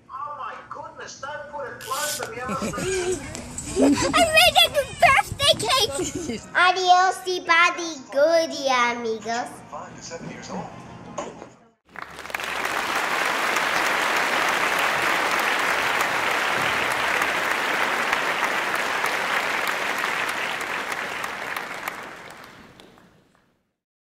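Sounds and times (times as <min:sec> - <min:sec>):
audience applause: 0:11.9 - 0:23.4.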